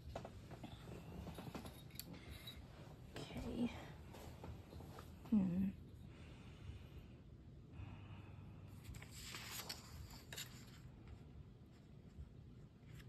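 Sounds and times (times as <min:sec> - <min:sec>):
paper rustling: 0:08.8 - 0:11.2.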